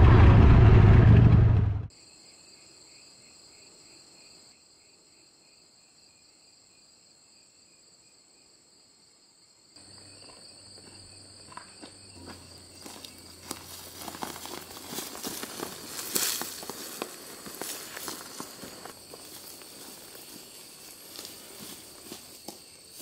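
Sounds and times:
insects trilling: 2.0 - 23.0.

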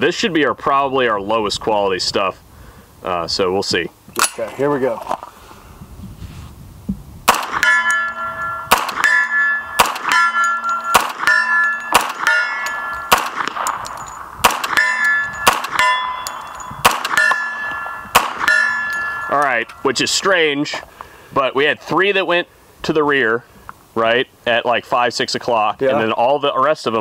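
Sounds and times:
gunshots: 7.3 - 7.9, 8.7 - 16.2, 16.8 - 19.0
steel plate target ringing: 7.3 - 19.9.

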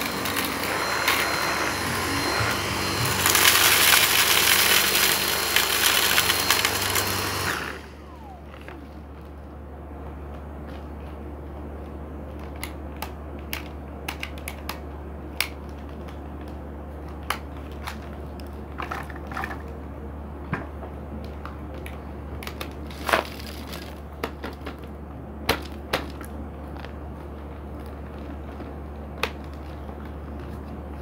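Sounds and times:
dry seeds being crushed: 0.0 - 7.5, 21.2 - 31.0
steady low hum: 0.0 - 31.0.

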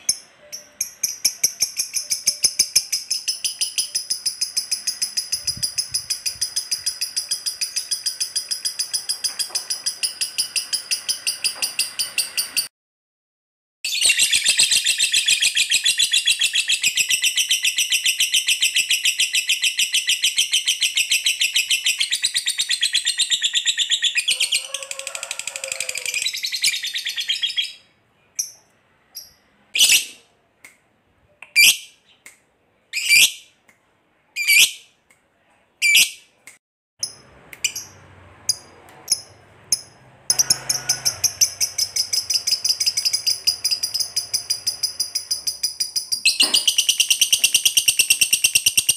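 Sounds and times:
lovebird chattering trill: 0.0 - 12.6, 38.5 - 48.9
lovebird sharp chirps: 0.0 - 12.7, 13.9 - 24.3, 34.4 - 34.9, 37.0 - 48.9.

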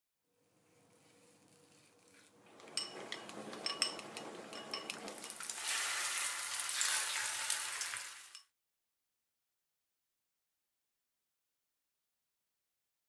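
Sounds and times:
chopsticks clinking against glass bowl: 2.6 - 5.5
food sizzling in frying pan: 4.4 - 8.5.

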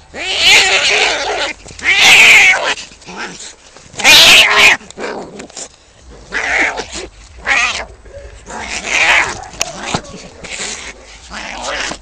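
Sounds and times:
cat yowling: 0.2 - 3.3, 4.0 - 4.8, 6.3 - 12.0.

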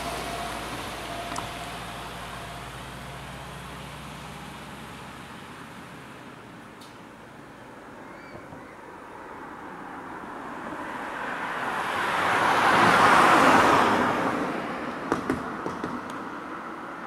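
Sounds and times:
car passing by: 0.0 - 5.3, 9.4 - 17.0.

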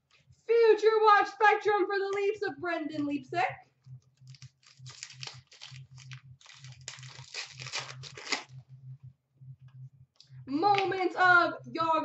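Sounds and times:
wrapper tearing and crinkling: 4.3 - 8.5.

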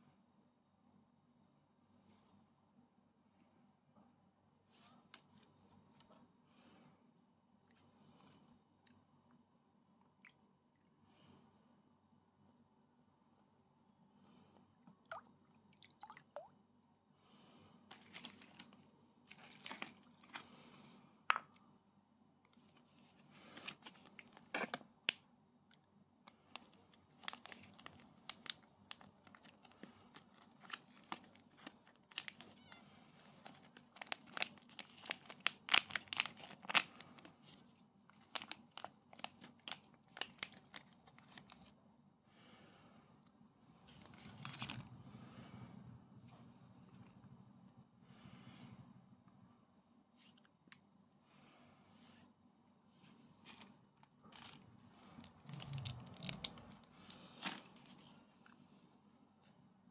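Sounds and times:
plastic pouch crinkling and tearing: 17.9 - 20.5, 23.5 - 25.2, 26.3 - 41.7, 44.0 - 44.9, 54.3 - 58.6.

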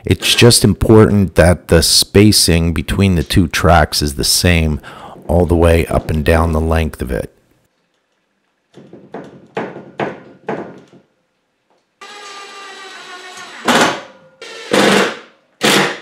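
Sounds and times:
drill motor whine: 12.0 - 13.7, 14.4 - 14.8.

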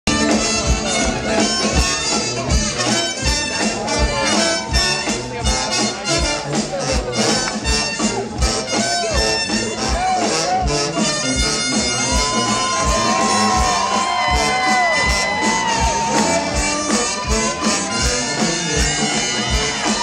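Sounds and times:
live blues band playing: 0.1 - 20.0.

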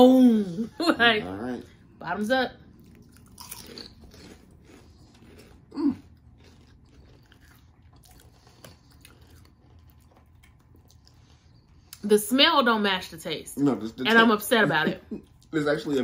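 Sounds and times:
people crunching potato chips: 2.9 - 11.2.

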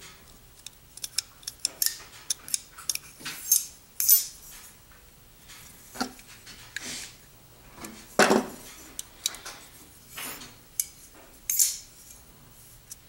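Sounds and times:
metal parts clinking: 11.5 - 11.8.

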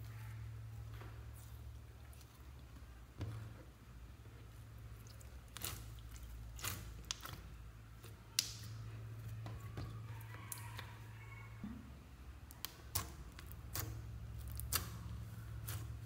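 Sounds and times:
steady low hum: 0.0 - 16.0
slime crackling and popping: 5.5 - 8.8, 12.4 - 16.0.

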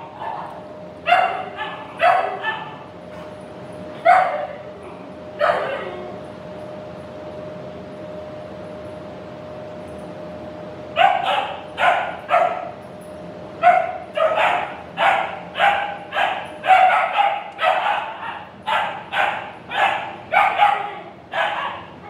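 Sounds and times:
dog barking: 0.1 - 2.8, 4.0 - 4.6, 5.4 - 5.9, 11.0 - 12.7, 13.6 - 21.9.

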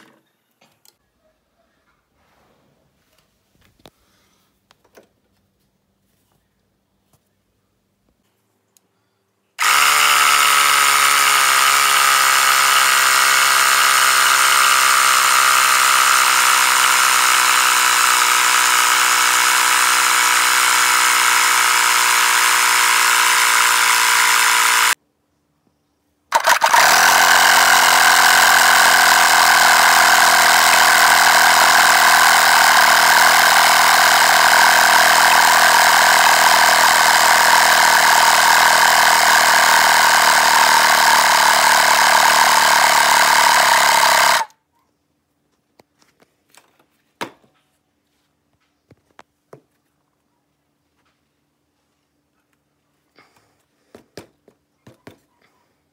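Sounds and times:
electric air compressor running: 9.6 - 25.0, 26.3 - 44.5.

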